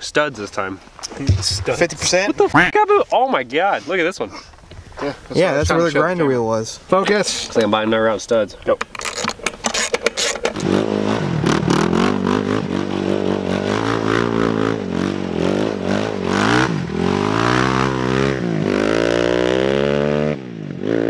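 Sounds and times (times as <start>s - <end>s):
quad engine revving: 9.1s - 21.0s.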